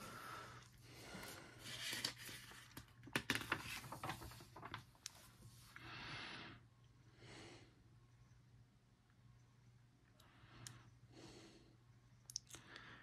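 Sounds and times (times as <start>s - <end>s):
paper page crinkling: 1.6s - 5.4s.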